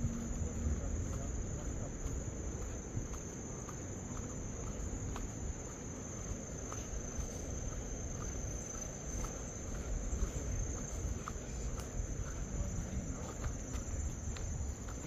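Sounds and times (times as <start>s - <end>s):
low rumble: 0.0s - 3.1s
insects droning: 0.0s - 15.0s.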